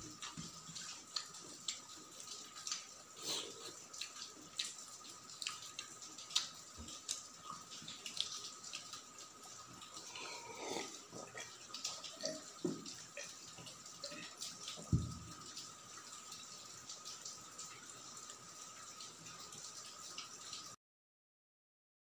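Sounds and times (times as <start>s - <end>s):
person gulping water: 9.9s - 13.3s.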